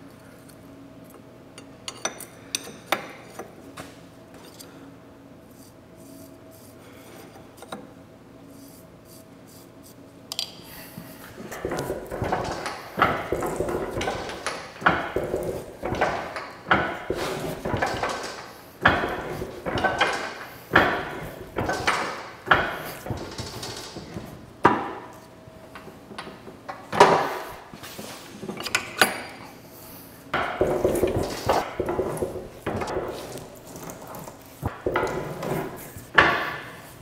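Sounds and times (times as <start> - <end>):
clattering rattle: 11.4 - 25.1, 30.4 - 37.0.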